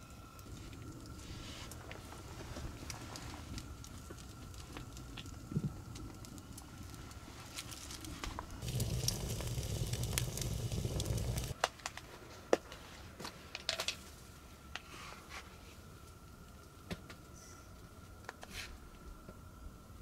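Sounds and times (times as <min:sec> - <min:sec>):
campfire crackling and popping: 0:00.0 - 0:12.7.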